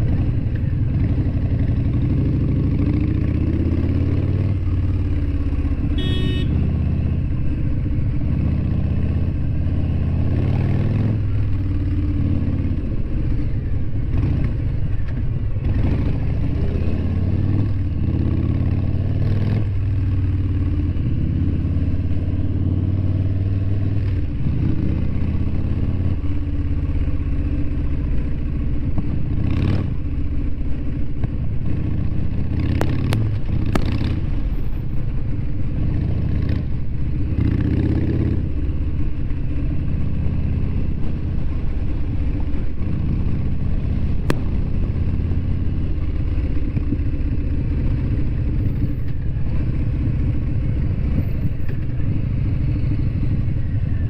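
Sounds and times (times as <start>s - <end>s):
motorcycle engine rumbling: 0.0s - 54.0s
short high beep: 6.0s - 6.5s.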